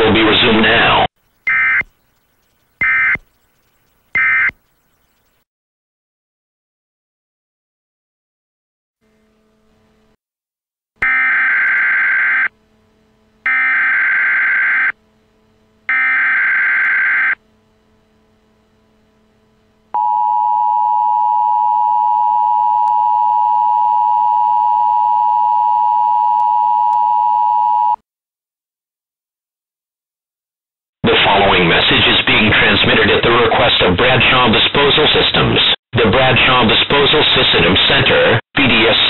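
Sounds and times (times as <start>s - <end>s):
warbling digital data tones: 1.2s - 5.3s
dual-tone attention beep: 1.5s - 2.0s, 2.8s - 3.2s, 4.2s - 4.6s.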